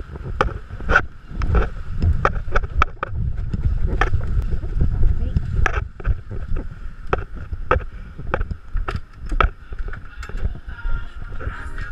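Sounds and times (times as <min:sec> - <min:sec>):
wind rumble on microphone: 0:00.0 - 0:11.9.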